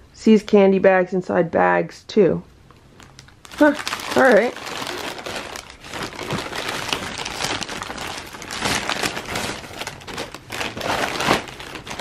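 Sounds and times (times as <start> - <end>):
plastic bags crinkling and rustling: 2.9 - 12.0.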